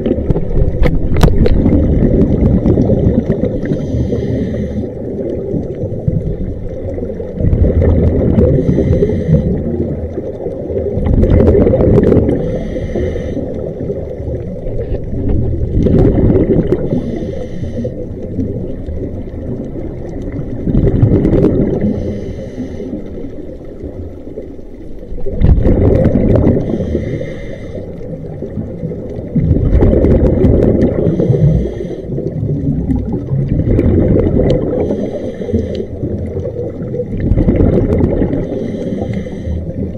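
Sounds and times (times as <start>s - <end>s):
diver exhaling bubbles: 0.0s - 24.4s, 25.0s - 39.9s
regulator hissing inhale: 3.6s - 5.1s, 8.5s - 9.7s, 12.3s - 13.9s, 16.8s - 18.1s, 21.8s - 23.4s, 26.6s - 28.2s, 31.0s - 32.4s, 34.8s - 36.1s, 38.4s - 39.9s.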